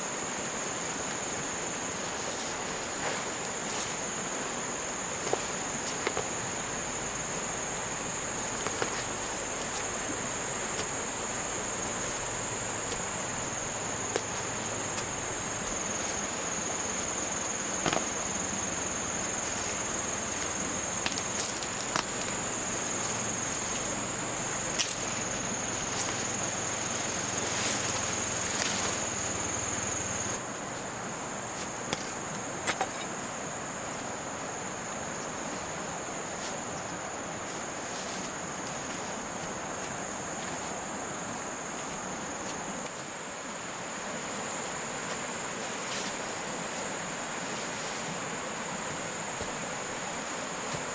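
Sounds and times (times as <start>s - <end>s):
insects chirring: 0.0s - 50.9s.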